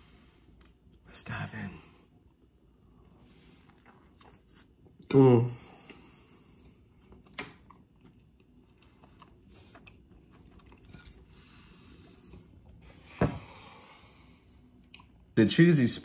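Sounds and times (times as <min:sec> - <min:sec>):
person chewing food: 0:02.1 - 0:05.1, 0:05.7 - 0:13.6, 0:14.5 - 0:15.4.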